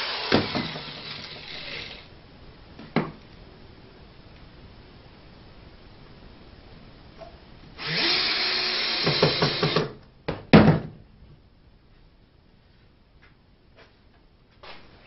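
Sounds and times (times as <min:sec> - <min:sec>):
cordless drill driving screw: 0:00.0 - 0:02.1, 0:07.8 - 0:09.9.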